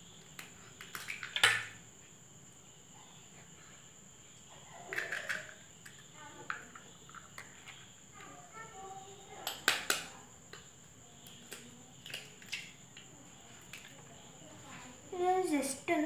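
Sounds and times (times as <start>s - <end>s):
egg cracking on metal bowl: 0.3s - 1.8s, 4.9s - 7.9s, 9.4s - 12.8s.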